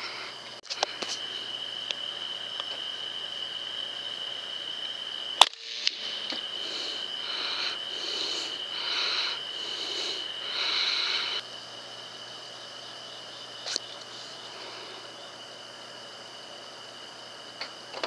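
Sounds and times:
steady high whine: 0:00.0 - 0:18.0
air rifle shot: 0:05.4 - 0:06.1.

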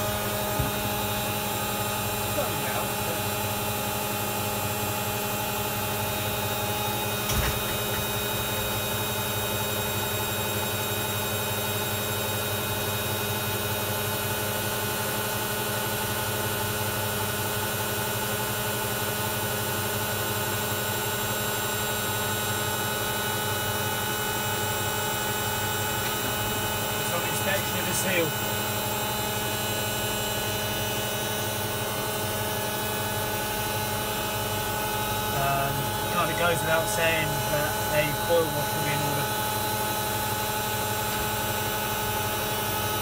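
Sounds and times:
washing machine running: 0:00.0 - 0:43.0.

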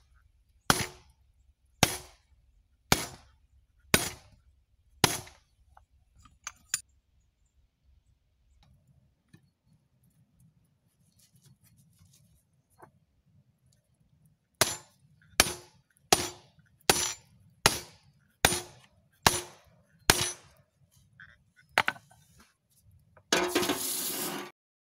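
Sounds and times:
hammer clanging on steel: 0:14.6 - 0:20.6.

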